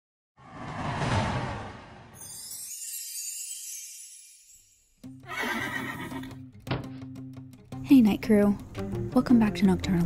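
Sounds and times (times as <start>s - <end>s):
low rumble: 0.4s - 2.2s
whoosh: 0.4s - 2.6s.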